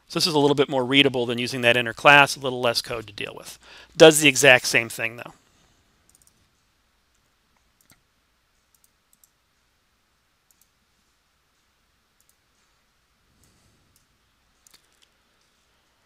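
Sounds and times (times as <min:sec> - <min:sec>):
computer mouse clicks: 0:06.1 - 0:06.4, 0:07.1 - 0:08.0, 0:08.6 - 0:09.4, 0:10.5 - 0:10.8, 0:12.2 - 0:12.7, 0:13.4 - 0:15.2.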